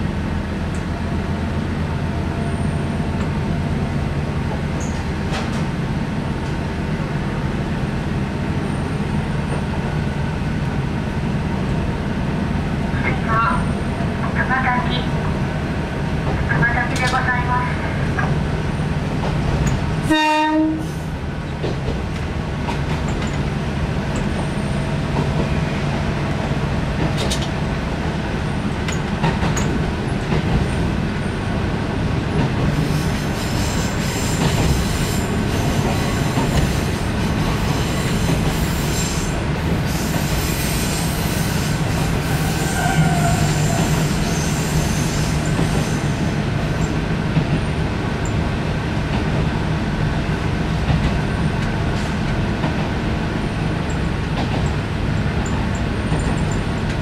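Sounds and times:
train horn blast: 0:20.1 - 0:21.0, 0:42.3 - 0:45.0.

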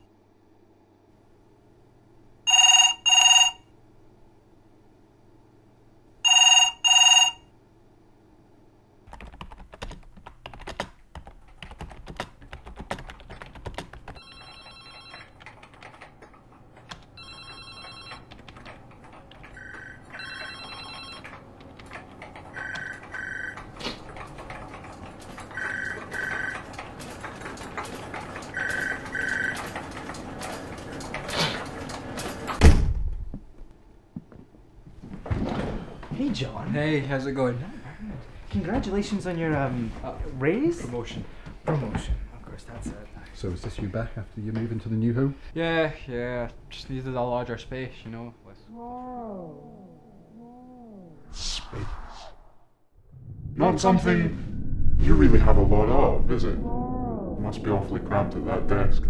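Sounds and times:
telephones ringing: 0:02.5 - 0:03.8, 0:06.2 - 0:07.5, 0:14.1 - 0:16.1, 0:17.0 - 0:30.7
fast keyboard typing: 0:09.1 - 0:32.4.

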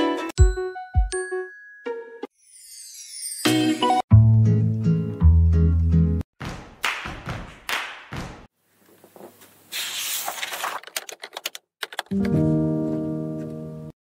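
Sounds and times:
guitar music: 0:12.1 - 0:13.9.

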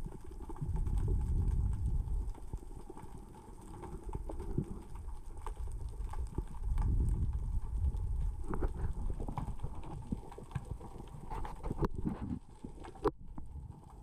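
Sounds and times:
underwater rocks clicking: 0:00.0 - 0:14.0
underwater surging rumble: 0:00.0 - 0:14.0.

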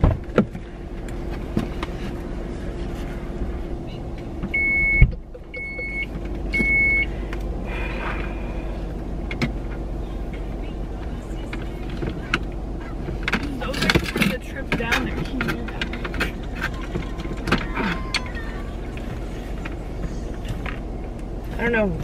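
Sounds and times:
low cabin hum: 0:00.0 - 0:22.0
high warning beeps: 0:04.5 - 0:07.1.

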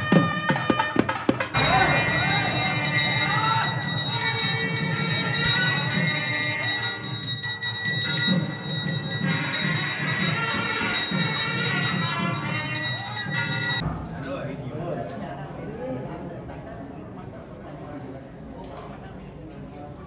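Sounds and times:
temple bells ringing: 0:01.6 - 0:13.8.

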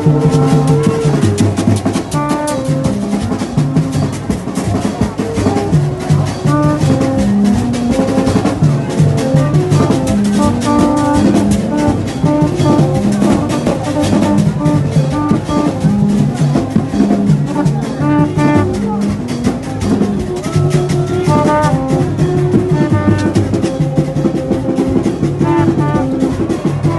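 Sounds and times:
fast dense drumming: 0:00.0 - 0:26.9
stepping melody: 0:00.0 - 0:26.9.

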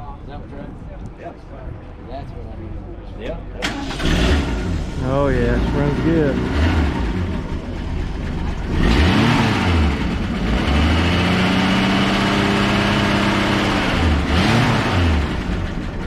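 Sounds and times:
pickup truck engine revving: 0:03.6 - 0:16.0.

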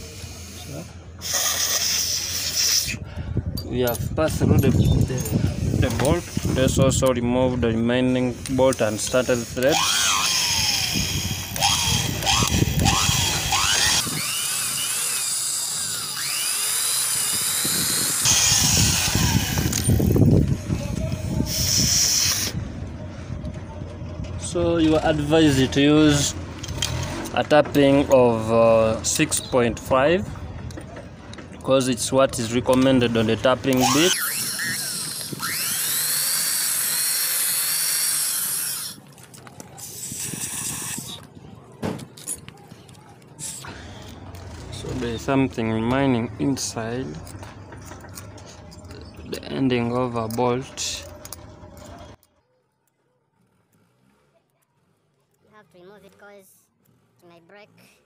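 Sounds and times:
electric drill drilling metal: 0:08.4 - 0:20.3, 0:33.7 - 0:39.0.

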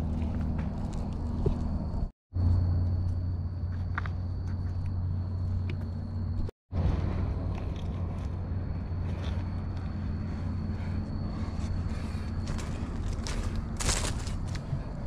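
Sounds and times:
steady low hum: 0:00.0 - 0:15.0
footsteps crunching dry leaves: 0:12.4 - 0:14.7.

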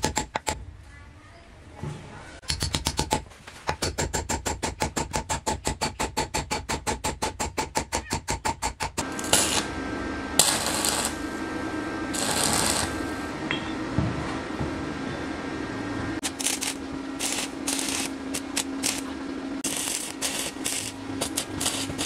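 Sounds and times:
arc welder crackling and hissing: 0:08.8 - 0:13.4, 0:16.1 - 0:22.0.

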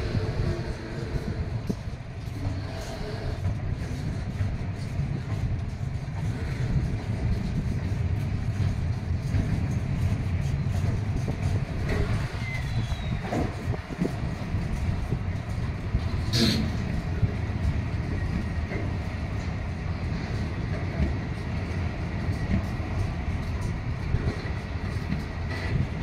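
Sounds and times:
freight wagons rolling on rails: 0:00.0 - 0:26.0.

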